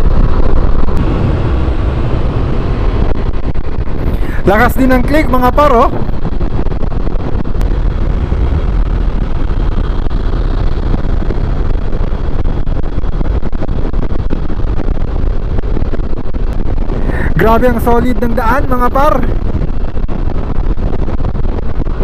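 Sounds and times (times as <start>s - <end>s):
motor scooter hum: 0.0s - 4.5s
wind rushing over microphone: 0.0s - 22.0s.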